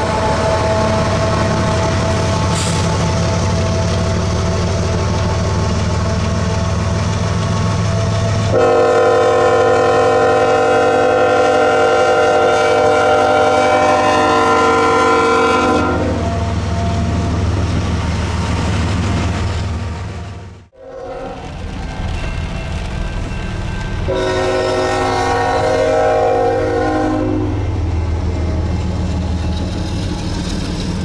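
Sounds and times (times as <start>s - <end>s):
low rumble of passing train: 0.0s - 31.0s
locomotive air horn blast: 8.5s - 16.5s, 20.7s - 21.4s, 24.1s - 27.7s.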